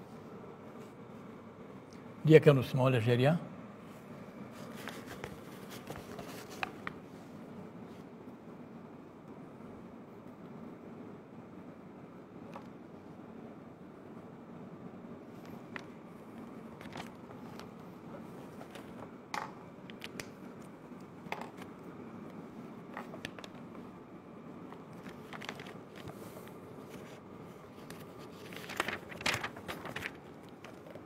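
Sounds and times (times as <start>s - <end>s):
papers being handled: 4.4s - 7.0s, 15.3s - 24.0s, 24.6s - 31.0s.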